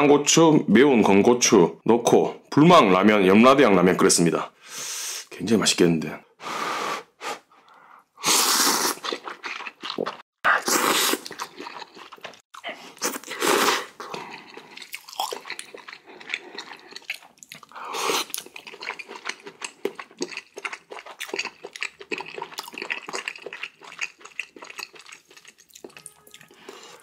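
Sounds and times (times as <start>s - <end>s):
noodle slurping: 8.2s - 27.0s
wet chewing: 8.5s - 27.0s.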